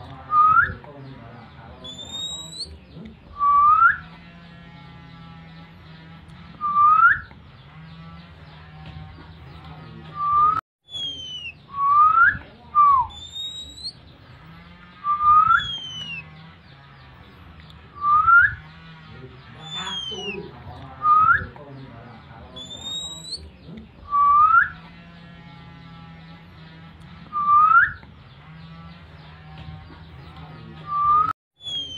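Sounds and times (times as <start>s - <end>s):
background bird chirps: 0.0s - 31.9s.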